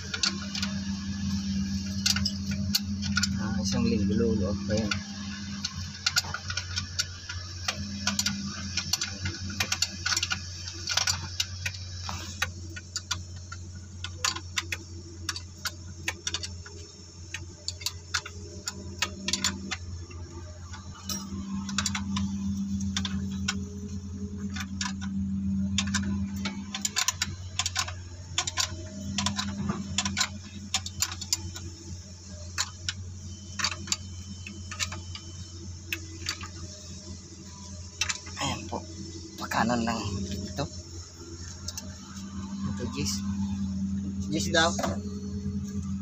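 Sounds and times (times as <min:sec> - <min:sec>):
steady low hum: 0:00.0 - 0:46.0
ratchet wrench clicking: 0:00.1 - 0:19.8, 0:20.7 - 0:23.7, 0:24.3 - 0:31.6, 0:38.0 - 0:38.8.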